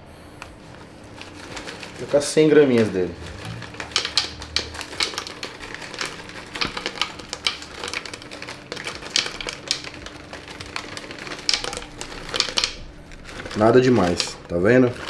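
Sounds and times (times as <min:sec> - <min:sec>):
berries dropping into plastic jar: 0:02.7 - 0:12.8.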